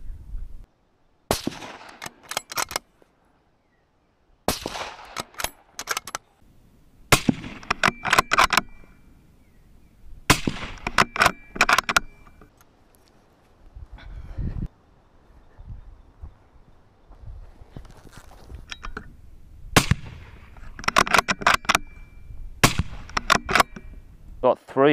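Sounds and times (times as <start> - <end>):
rifle shots: 1.3 - 2.7, 4.5 - 6.0, 7.1 - 8.8, 10.3 - 11.6, 19.8 - 20.4, 22.6 - 23.8
metallic clicks of rifle bolt: 1.6 - 2.9, 5.0 - 6.3, 7.6 - 8.8, 10.6 - 13.1, 20.5 - 22.0, 23.0 - 23.9.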